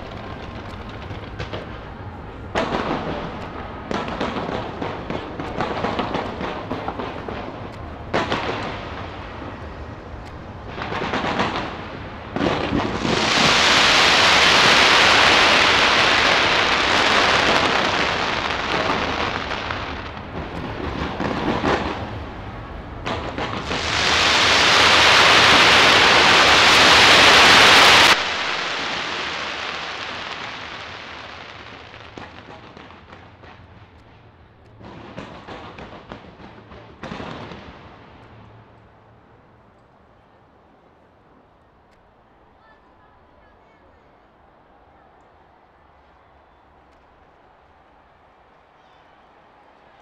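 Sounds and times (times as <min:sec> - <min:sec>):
fireworks crackling: 0:00.0 - 0:39.4.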